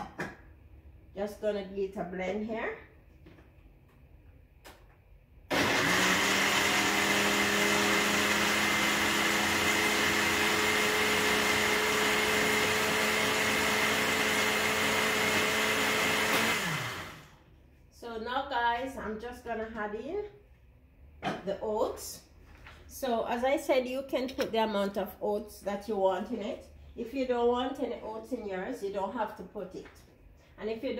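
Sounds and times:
blender motor running: 5.5 - 17.4
blender motor winding down: 5.5 - 17.4.

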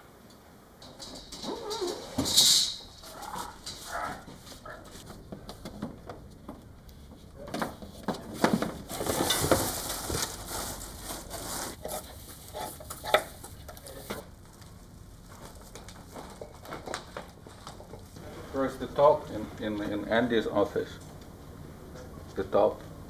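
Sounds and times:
rustling cardboard and plastic branches: 0.9 - 18.8.

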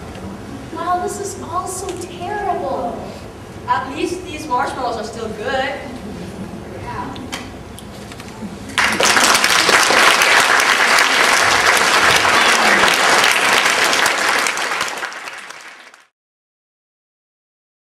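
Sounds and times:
audience applauding: 8.8 - 16.1.

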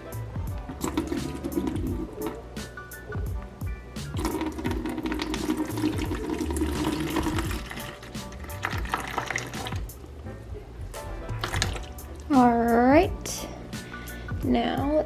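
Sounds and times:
background music: 0.0 - 15.0
water splashing into plastic bucket: 0.7 - 2.4, 4.2 - 9.9, 11.4 - 12.0.

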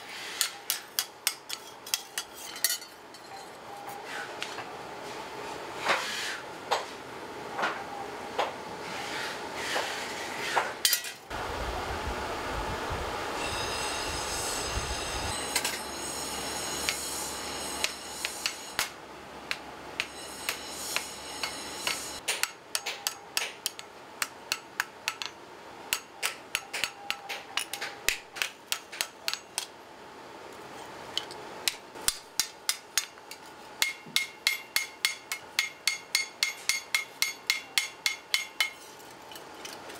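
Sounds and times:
hammer striking metal on anvil: 13.4 - 29.7, 31.7 - 33.2, 33.8 - 38.9.

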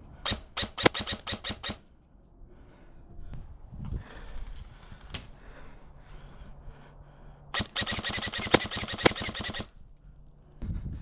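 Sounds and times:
airsoft gun rapid burst: 0.3 - 1.8, 7.6 - 9.7.

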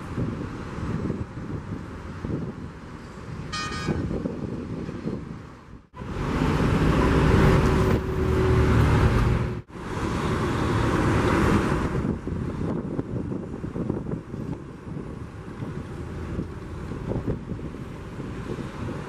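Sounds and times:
road traffic droning: 0.0 - 19.0
wind noise: 0.0 - 19.0
horn toot: 3.5 - 4.2.

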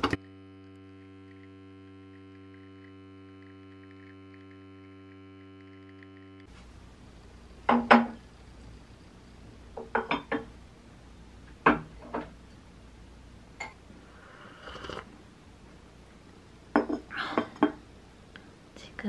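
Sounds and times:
ceramic plate and cup clinking: 16.8 - 17.8.

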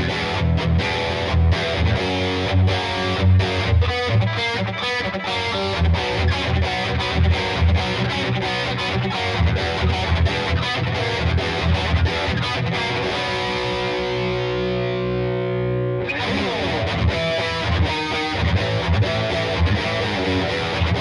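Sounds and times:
distorted electric guitar: 0.0 - 21.0.

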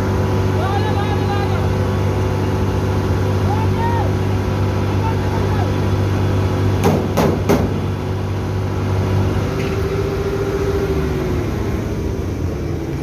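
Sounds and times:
large diesel engine running: 0.0 - 13.0
sharp knocks: 6.8 - 7.8.

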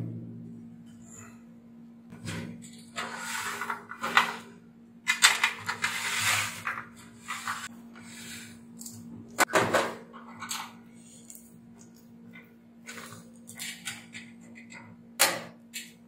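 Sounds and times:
low hum: 0.0 - 3.0.

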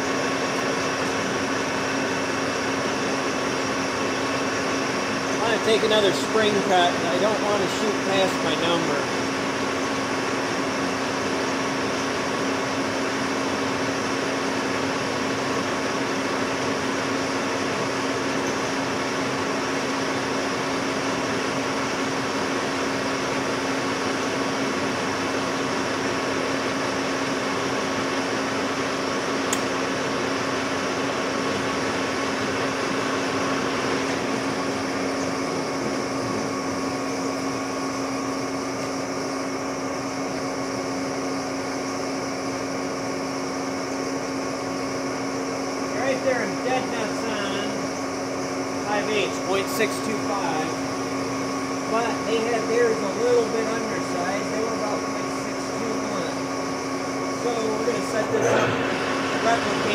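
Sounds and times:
lathe motor and gear hum: 0.0 - 59.9.

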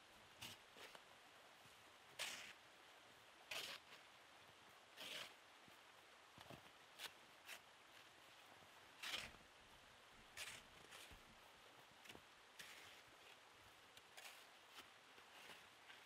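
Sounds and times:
shovel scraping snow: 2.2 - 2.6, 3.5 - 4.0, 5.0 - 5.4, 9.0 - 9.4, 10.4 - 11.1, 12.6 - 13.1, 14.2 - 16.0.

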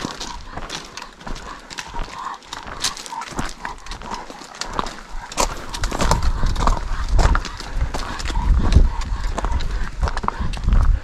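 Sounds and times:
footsteps on rocky ground: 0.0 - 11.0
low rumble: 3.4 - 11.0.

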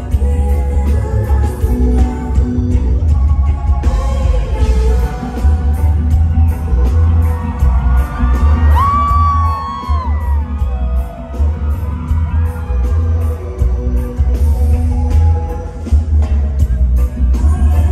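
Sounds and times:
reggae band playing: 0.0 - 17.9
loud high whoop: 6.5 - 13.3.

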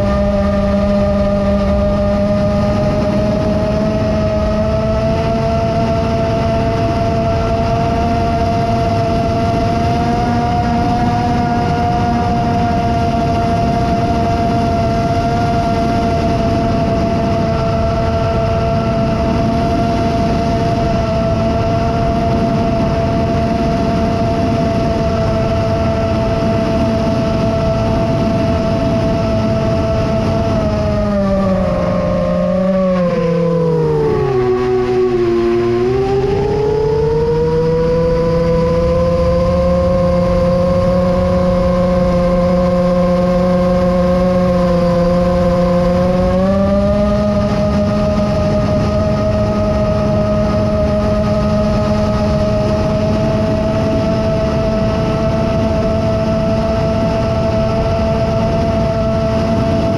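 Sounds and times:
drone propellers buzzing: 0.0 - 59.9
wind and air rush: 0.0 - 59.9.

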